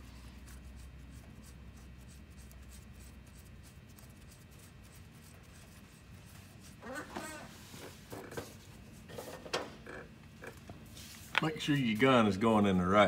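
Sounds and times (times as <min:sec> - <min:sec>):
low steady hum: 0:00.0 - 0:13.0
nut scratching on threads: 0:00.4 - 0:07.5.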